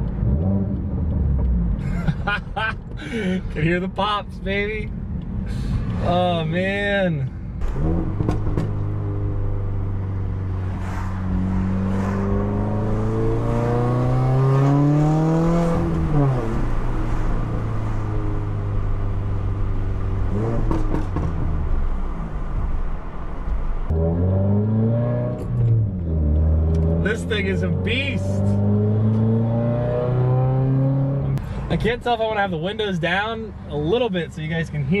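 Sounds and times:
turbocharged car engine accelerating: 7.6s - 22.7s, 23.8s - 31.4s.

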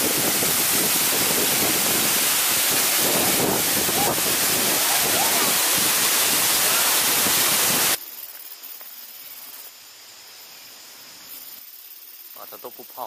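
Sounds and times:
waterfall roaring: 0.0s - 8.0s
faint hiss with high tones: 0.0s - 13.0s.

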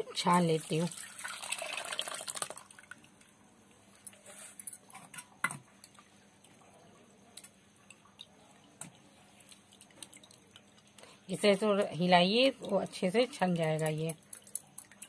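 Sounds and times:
liquid dripping through a mesh strainer: 0.9s - 3.4s, 5.8s - 15.0s.

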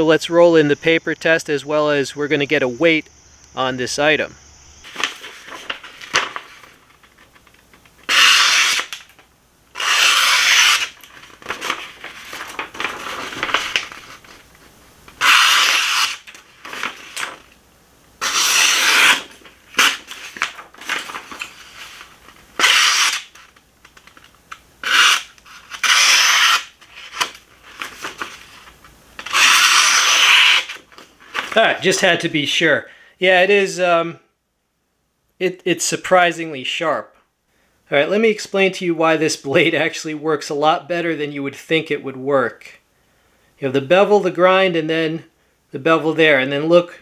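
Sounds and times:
knife slicing paper: 8.1s - 9.0s, 9.8s - 14.3s, 15.2s - 17.4s, 18.2s - 23.5s, 24.8s - 28.6s, 29.2s - 30.8s.

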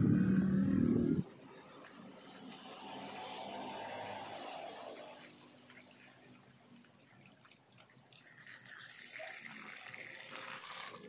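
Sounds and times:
water splashing onto plastic: 1.6s - 11.0s.

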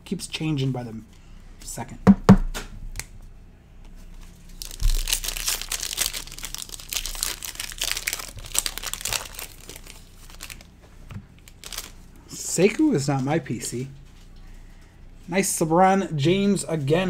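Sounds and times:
foil wrapper crinkling: 4.1s - 10.8s, 11.4s - 12.0s.

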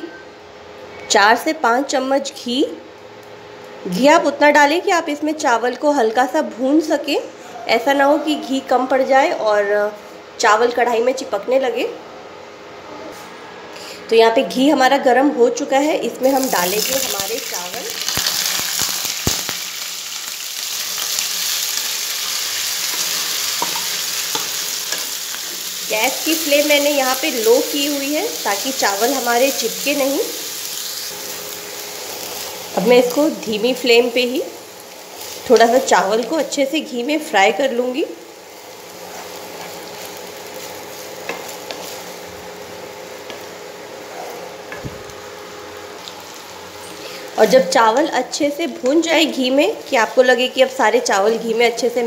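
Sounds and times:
rice sizzling in hot fat: 16.2s - 52.0s.

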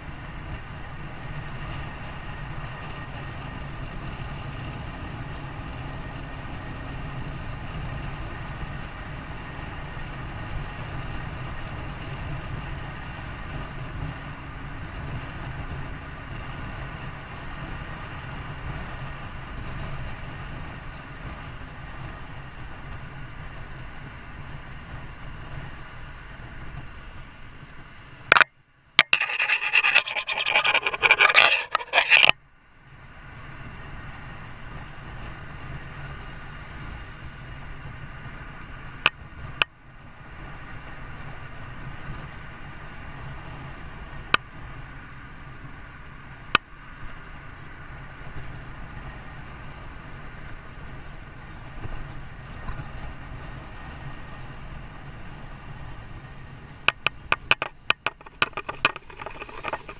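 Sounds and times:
scratching on microphone: 28.3s - 32.4s, 56.9s - 59.9s.

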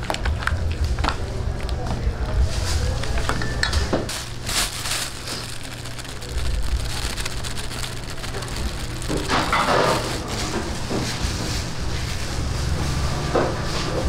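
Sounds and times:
low hum: 4.2s - 13.2s.

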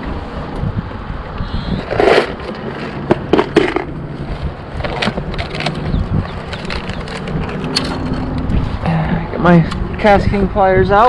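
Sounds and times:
wind buffeting microphone: 0.0s - 11.0s
tools and packets rustling in bag: 4.8s - 8.4s.

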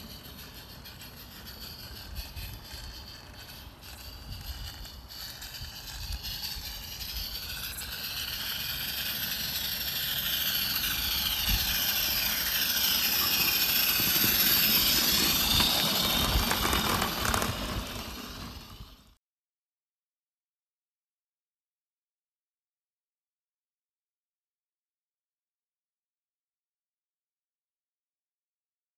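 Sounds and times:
steam locomotive chuffing and hissing: 0.0s - 19.2s.

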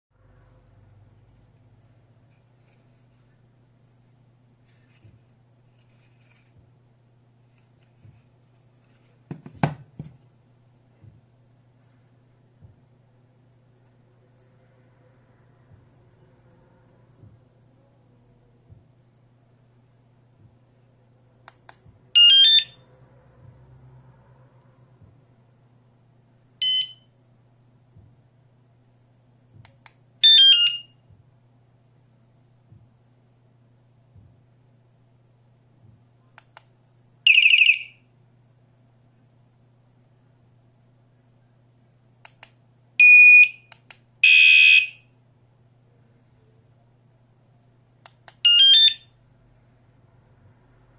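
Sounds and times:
low steady hum: 0.2s - 50.9s
plastic handling taps and knocks: 9.2s - 10.3s.

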